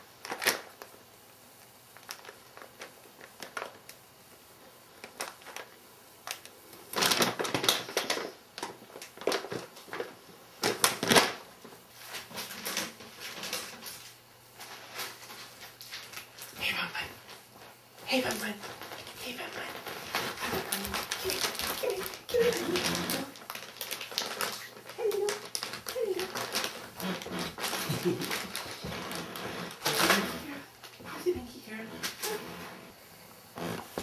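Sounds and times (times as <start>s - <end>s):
rabbit crunching snacks: 1.6s - 11.4s, 17.6s - 31.0s.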